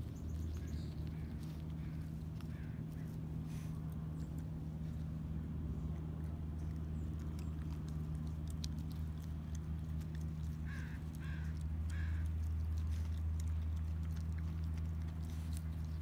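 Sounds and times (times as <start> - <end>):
steady low rumble: 0.0 - 16.0
raccoon calls: 0.5 - 3.2, 10.5 - 12.6.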